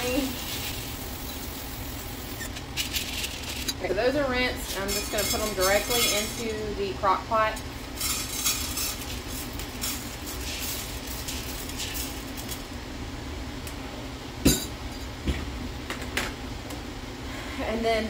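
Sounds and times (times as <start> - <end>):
beans rattling into pot: 2.6 - 3.8, 4.6 - 6.7, 8.0 - 12.7.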